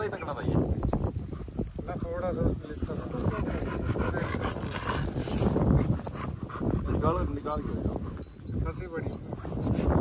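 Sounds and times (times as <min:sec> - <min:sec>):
dog making rough noises: 0:02.8 - 0:07.8.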